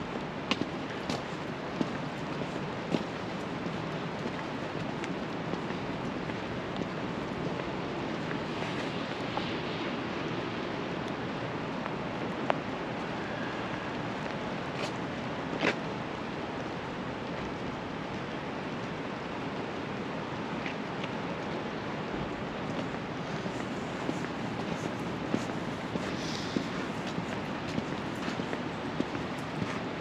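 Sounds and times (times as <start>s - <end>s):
traffic on wet streets: 0.0s - 30.0s
rain hissing: 23.1s - 28.1s.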